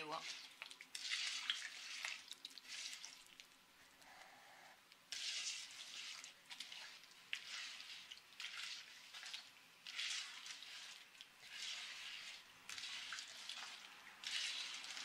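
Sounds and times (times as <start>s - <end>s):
hands squishing wet dough: 0.0s - 4.0s, 5.0s - 15.0s.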